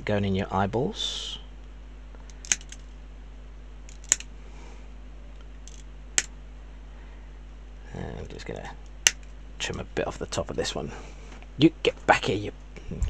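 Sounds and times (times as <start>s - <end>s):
side cutters snipping plastic: 2.3s - 2.8s, 3.9s - 4.3s.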